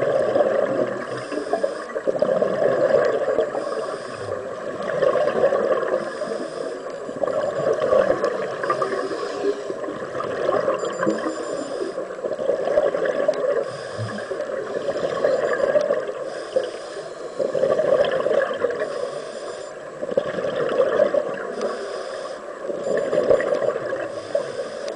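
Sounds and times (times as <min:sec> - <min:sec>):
scuba regulator breathing underwater: 0:01.0 - 0:02.8, 0:03.4 - 0:04.6, 0:05.8 - 0:07.2, 0:08.6 - 0:10.0, 0:11.2 - 0:12.2, 0:13.4 - 0:17.9, 0:18.6 - 0:19.9, 0:21.4 - 0:22.7, 0:24.0 - 0:24.9.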